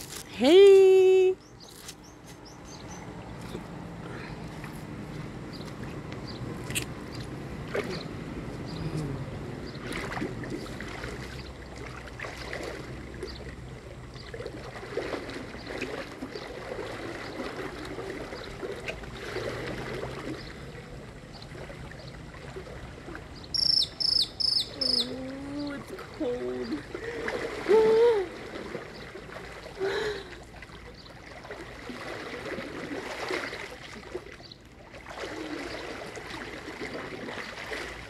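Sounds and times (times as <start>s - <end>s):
water sloshing and splashing: 0.0s - 38.0s
bird chirping: 1.4s - 3.1s, 23.4s - 25.7s.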